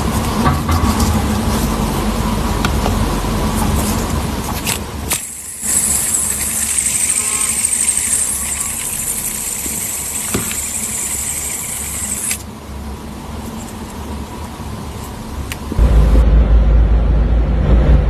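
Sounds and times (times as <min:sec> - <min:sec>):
low rumble: 0:00.1 - 0:04.6, 0:15.2 - 0:18.0
fidget spinner whirring: 0:02.5 - 0:14.2.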